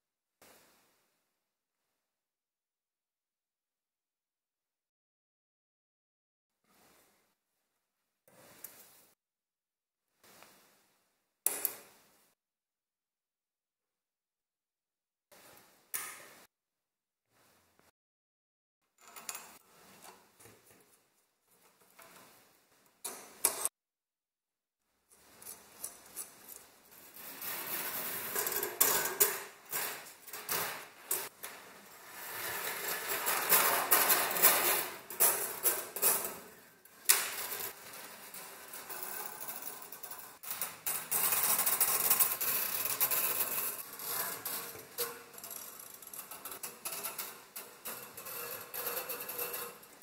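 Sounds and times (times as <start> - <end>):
wire coil scraping on metal: 25.2 - 50.0.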